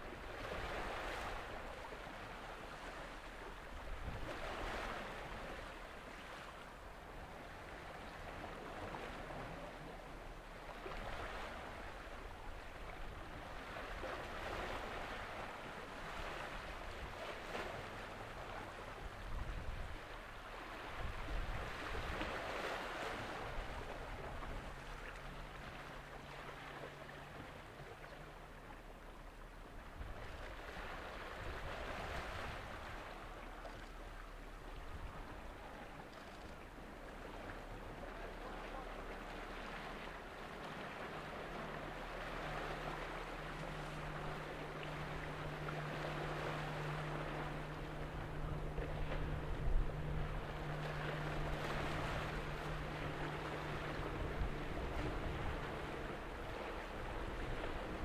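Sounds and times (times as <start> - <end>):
wind rumbling on microphone: 0.0 - 25.8, 29.7 - 58.0
small waves washing on shore: 0.0 - 58.0
faint low hum: 31.5 - 58.0.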